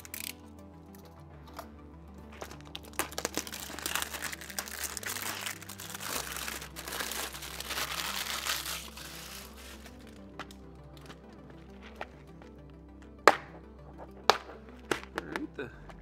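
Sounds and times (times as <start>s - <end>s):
plastic wrap crackling: 0.0s - 0.4s, 2.4s - 10.5s
background music: 0.0s - 16.0s.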